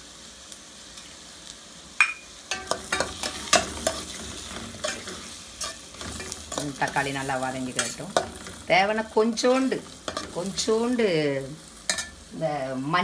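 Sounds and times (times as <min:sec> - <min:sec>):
onions and tomatoes sizzling: 0:00.0 - 0:13.0
metal spoon clinking against pan: 0:02.0 - 0:07.0, 0:07.7 - 0:08.6, 0:09.5 - 0:10.4, 0:11.9 - 0:12.2
spoon scraping pan: 0:02.1 - 0:11.0, 0:11.9 - 0:12.2.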